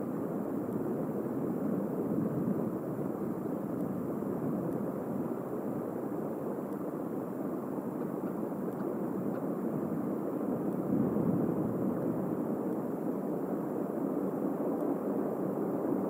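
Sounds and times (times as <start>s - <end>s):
faint ticks: 0.2s - 2.5s, 3.2s - 11.0s, 12.6s - 15.1s.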